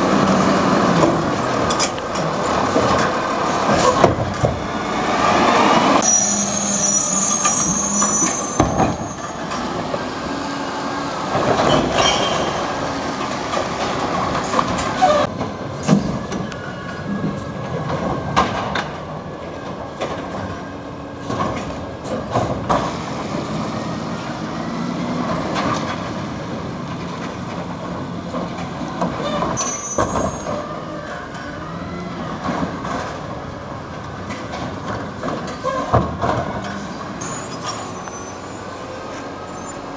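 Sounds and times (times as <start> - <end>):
garbage truck engine and hydraulics: 0.0 - 39.9
high squeal: 6.0 - 9.6, 11.7 - 12.8, 29.3 - 31.4, 37.2 - 39.9.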